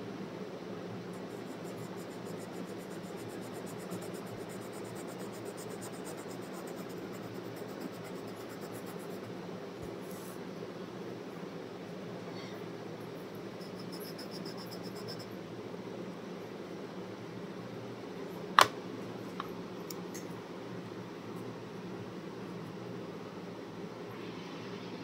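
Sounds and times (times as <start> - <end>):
steady low hum: 0.0 - 25.0
pencil scratching on paper: 1.2 - 9.3.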